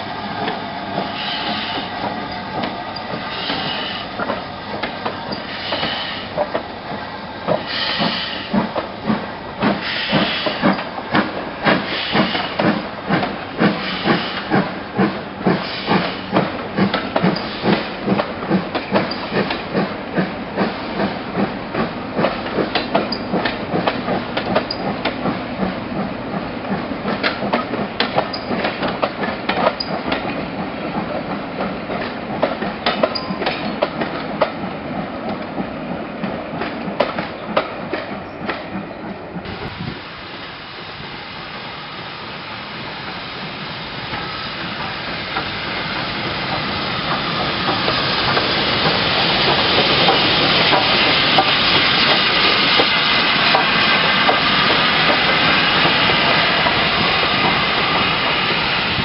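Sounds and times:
steam locomotive exhaust beats: 0:00.0 - 0:59.0
steam hissing: 0:00.3 - 0:06.6, 0:07.4 - 0:19.8, 0:39.5 - 0:59.0.

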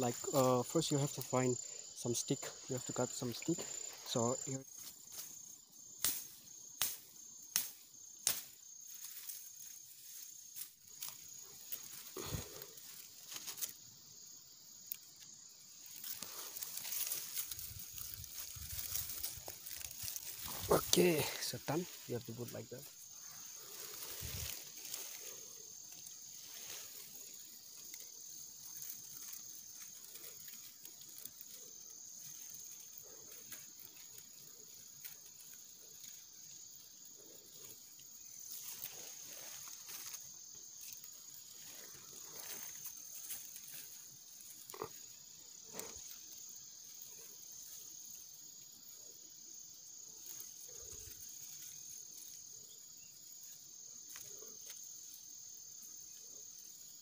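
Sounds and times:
insects chirring: 0:00.0 - 0:57.0
dry grass rustling and snapping: 0:04.2 - 0:13.9, 0:14.8 - 0:48.9, 0:50.2 - 0:52.8, 0:53.4 - 0:55.2.

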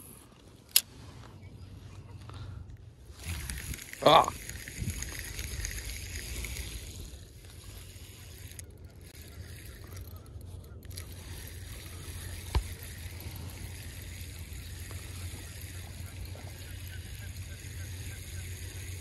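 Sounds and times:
wind rumbling on microphone: 0:03.1 - 0:08.5.

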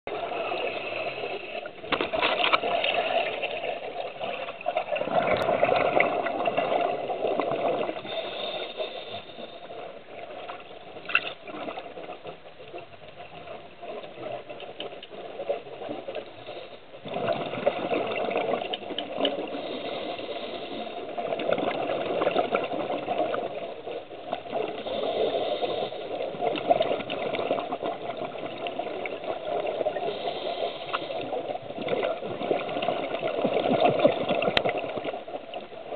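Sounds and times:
exhaust bubbles bubbling: 0:04.8 - 0:08.0, 0:17.0 - 0:18.8
diver breathing through regulator: 0:07.9 - 0:10.0, 0:16.3 - 0:16.9, 0:19.4 - 0:21.2, 0:24.7 - 0:26.4, 0:29.9 - 0:31.4.

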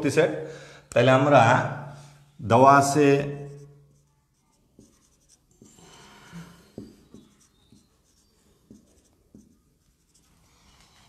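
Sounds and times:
pen scratching: 0:03.4 - 0:11.0.

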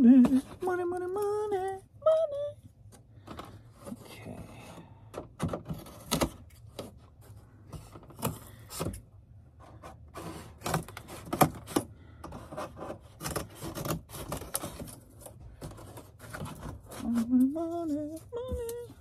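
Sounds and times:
cardboard rubbing and scraping: 0:09.6 - 0:18.0.

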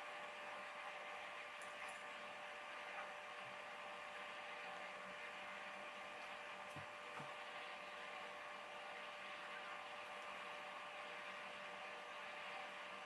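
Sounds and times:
faint hum and hiss: 0:00.0 - 0:13.0.

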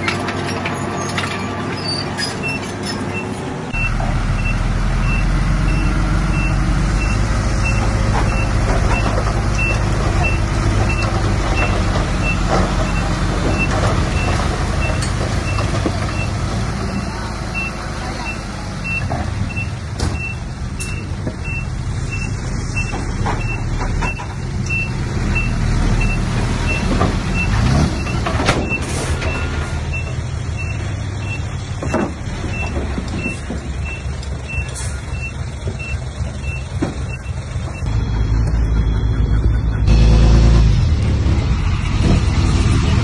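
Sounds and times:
diesel engines running: 0:00.0 - 0:43.0
reversing alarm beeping: 0:02.4 - 0:16.3.

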